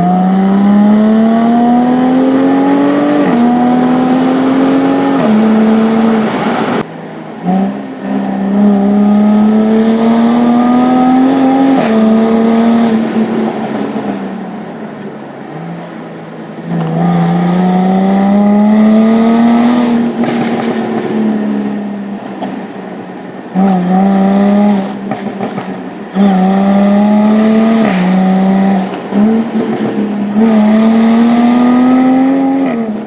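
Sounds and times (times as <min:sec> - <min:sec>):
car engine accelerating: 0:00.0 - 0:33.0
sharp cracks at gear changes: 0:11.2 - 0:13.0, 0:19.6 - 0:21.2, 0:25.0 - 0:26.4, 0:27.6 - 0:30.7.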